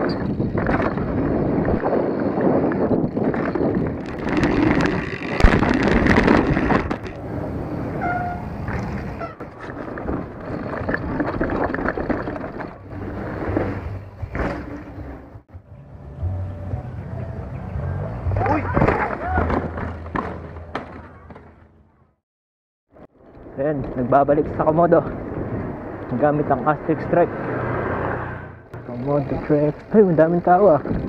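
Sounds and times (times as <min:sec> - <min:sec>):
wind on microphone: 0:00.0 - 0:12.2
bike tyres rolling on dirt: 0:00.0 - 0:15.3, 0:23.0 - 0:27.6, 0:28.8 - 0:31.0
bike rattling over bumps: 0:00.0 - 0:15.4, 0:18.4 - 0:21.8, 0:28.7 - 0:31.0.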